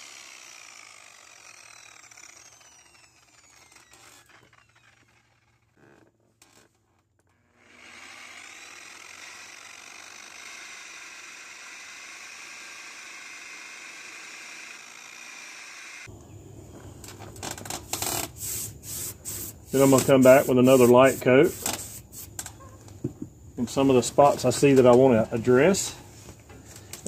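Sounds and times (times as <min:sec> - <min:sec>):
electric polisher whirring: 0:00.0 - 0:06.0, 0:07.3 - 0:16.1.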